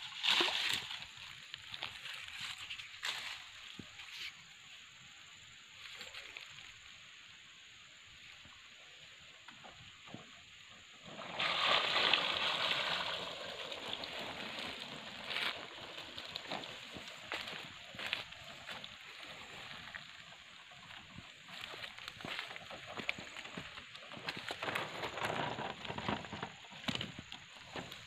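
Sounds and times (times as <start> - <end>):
shallow water sloshing and splashing: 0.0 - 1.8, 11.0 - 20.5.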